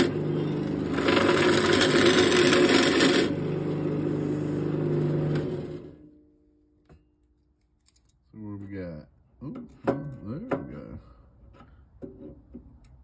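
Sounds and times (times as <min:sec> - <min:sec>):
lathe motor hum: 0:00.0 - 0:06.0
tool scraping spinning wood: 0:00.0 - 0:06.0.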